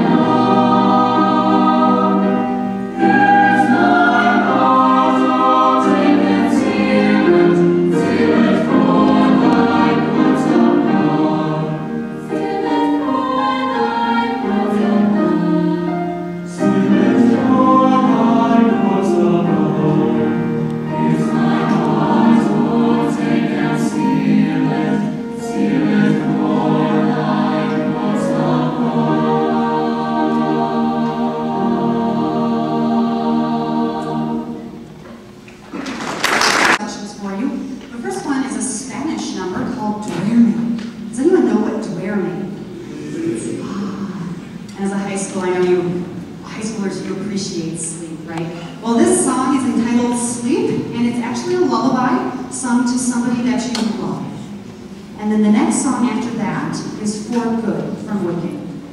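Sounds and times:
mixed choir singing in harmony: 0:00.0 - 0:36.8, 0:41.8 - 0:47.0.

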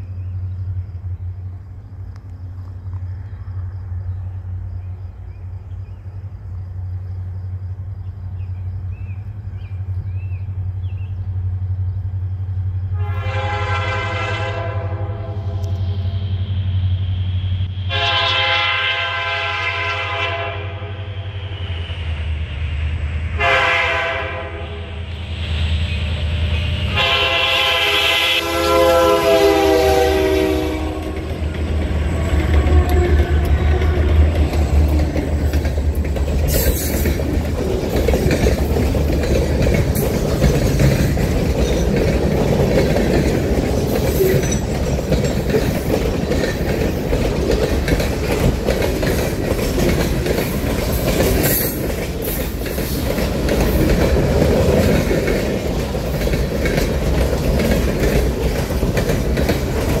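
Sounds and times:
diesel locomotive engines humming: 0:00.0 - 1:00.0
train wheels rolling on rails: 0:00.0 - 1:00.0
wheels clattering over rail joints: 0:30.9 - 1:00.0.

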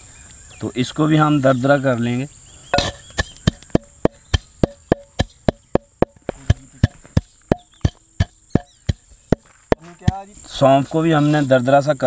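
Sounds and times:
pestle pounding in mortar: 0:02.8 - 0:10.3.

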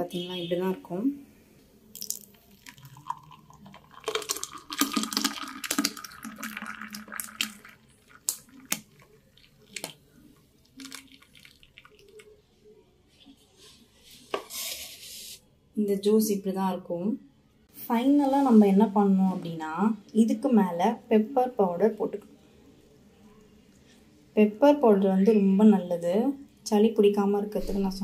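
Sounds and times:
juice pouring into glass: 0:01.9 - 0:12.4
liquid dripping: 0:01.9 - 0:12.4.

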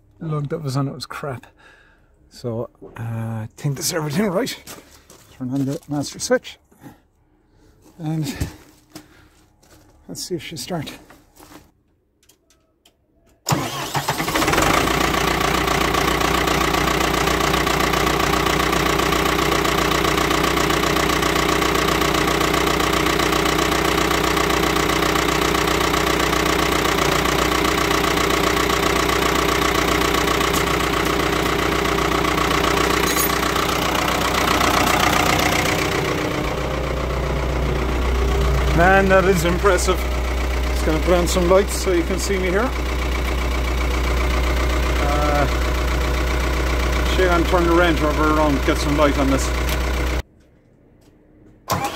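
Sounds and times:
starter motor cranking: 0:13.5 - 0:50.2, 0:51.7 - 0:51.9
diesel engine idling: 0:13.5 - 0:50.3.

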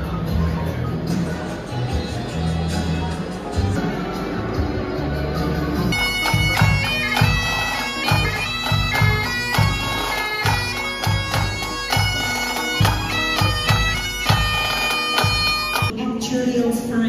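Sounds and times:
drums keeping steady beat: 0:00.0 - 0:16.0
bagpipes playing march: 0:05.9 - 0:15.9.

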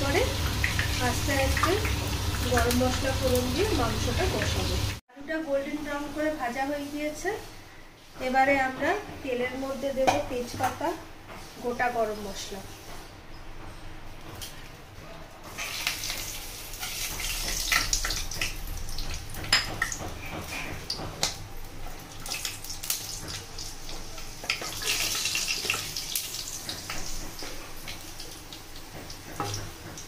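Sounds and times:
spices sizzling in hot oil: 0:00.0 - 0:05.0, 0:05.6 - 0:07.5, 0:15.5 - 0:30.0.

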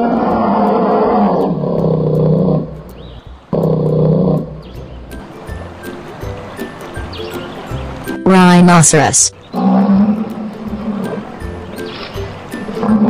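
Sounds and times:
bear roaring: 0:00.0 - 0:04.7, 0:09.5 - 0:11.6, 0:12.5 - 0:13.0.

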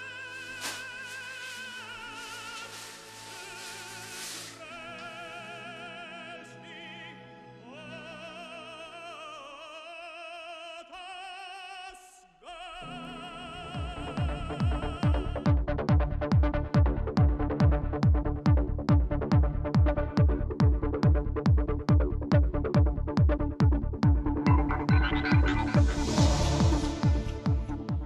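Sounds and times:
operatic singing with vibrato: 0:00.0 - 0:15.5, 0:24.3 - 0:28.0
music: 0:00.0 - 0:28.0.

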